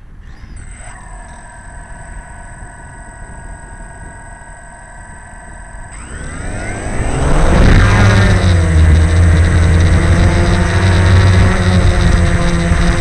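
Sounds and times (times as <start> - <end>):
model car motor whine: 0.0 - 13.0
low rumble: 5.9 - 13.0.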